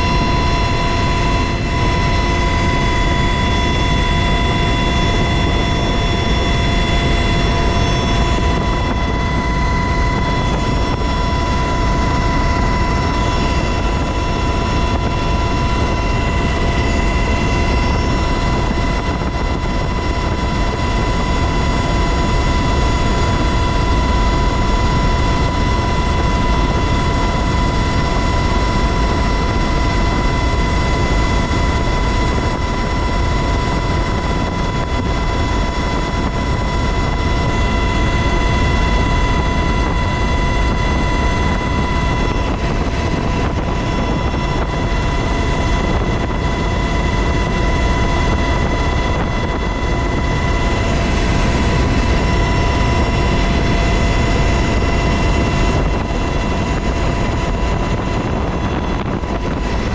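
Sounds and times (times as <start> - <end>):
helicopter rotor and engine noise: 0.0 - 59.9
high whine: 0.0 - 59.9.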